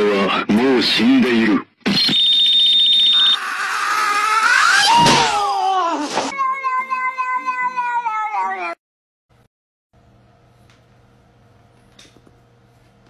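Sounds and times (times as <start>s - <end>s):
high pulsing beep: 2.1s - 3.4s
high wavering cry: 3.1s - 8.2s
cat meowing: 6.3s - 8.8s.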